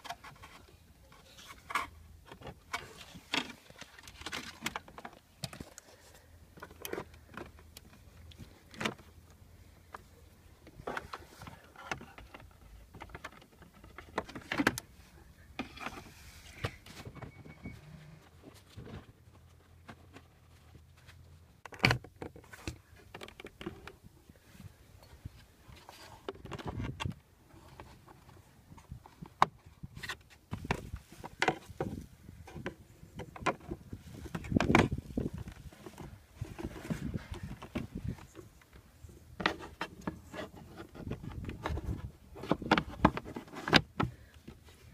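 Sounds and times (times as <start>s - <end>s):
rustling: 22.3s - 44.9s.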